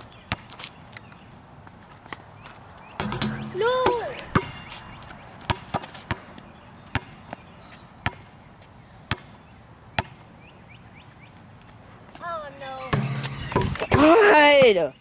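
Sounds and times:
basketball bouncing on asphalt: 0:00.0 - 0:00.8, 0:01.6 - 0:07.4, 0:08.0 - 0:08.4, 0:09.1 - 0:10.4, 0:12.8 - 0:15.0.

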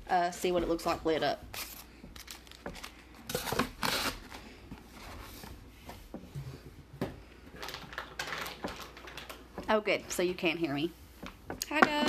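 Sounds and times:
packaging rustling: 0:01.6 - 0:04.5, 0:07.5 - 0:09.5.

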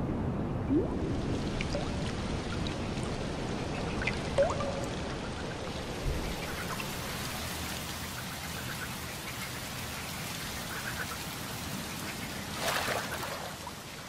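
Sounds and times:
rain falling on water: 0:00.7 - 0:14.0.

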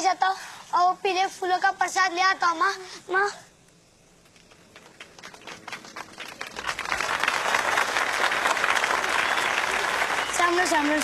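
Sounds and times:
audience applause: 0:04.7 - 0:11.0.

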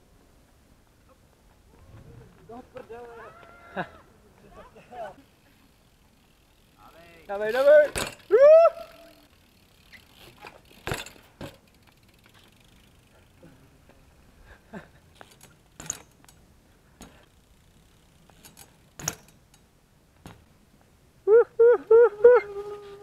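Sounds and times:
person yelling: 0:03.1 - 0:04.1, 0:07.6 - 0:09.2
bike clicks and knocks on concrete: 0:07.0 - 0:08.3, 0:09.2 - 0:14.0, 0:15.1 - 0:20.5.

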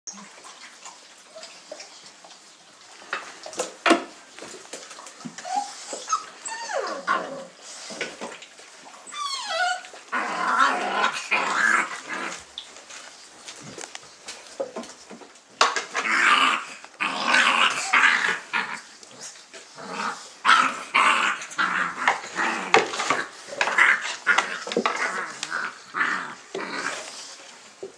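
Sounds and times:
puppies growling: 0:02.8 - 0:27.9
puppies whining and yipping: 0:05.2 - 0:08.0, 0:08.6 - 0:10.8.

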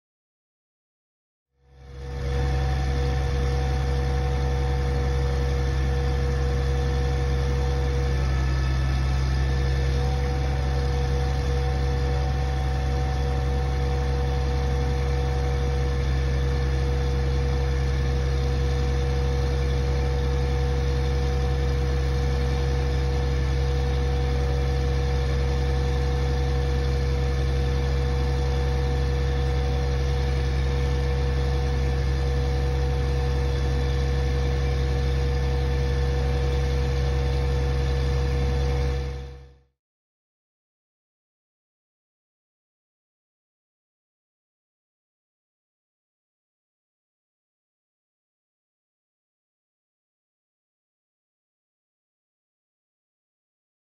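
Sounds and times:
steady whine: 0:01.8 - 0:39.4
diesel engine droning: 0:01.9 - 0:19.0.

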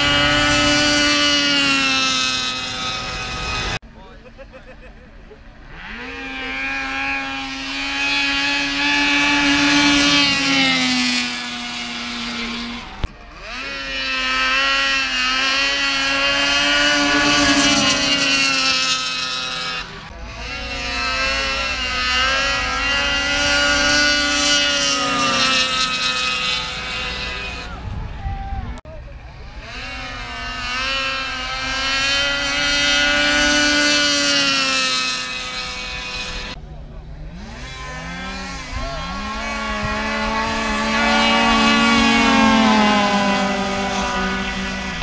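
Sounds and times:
snowmobile engine at full throttle: 0:00.0 - 0:45.0.

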